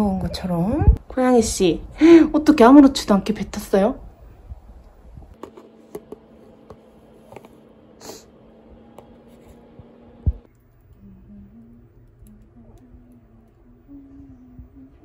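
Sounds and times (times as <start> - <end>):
soft low tune: 10.3 - 15.0.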